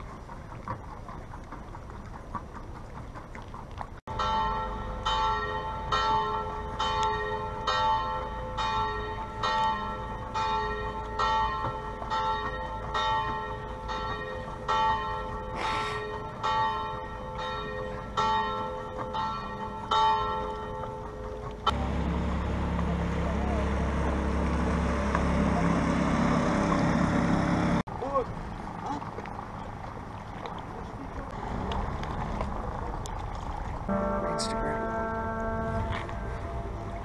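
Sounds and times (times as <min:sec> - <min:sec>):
church bells ringing: 0:04.1 - 0:21.1, 0:33.9 - 0:37.0.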